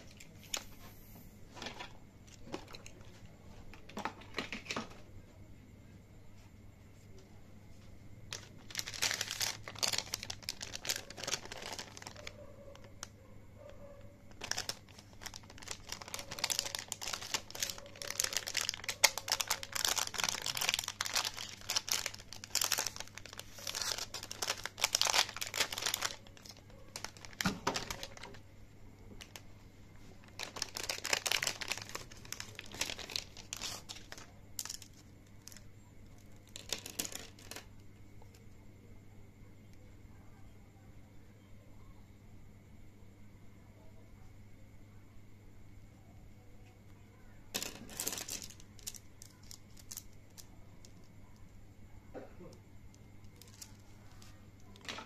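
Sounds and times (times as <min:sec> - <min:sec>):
plastic packaging crinkling and tearing: 0:08.3 - 0:13.2, 0:14.3 - 0:28.4, 0:29.1 - 0:29.4, 0:30.0 - 0:35.6, 0:36.4 - 0:37.7, 0:47.6 - 0:51.0, 0:53.3 - 0:55.0.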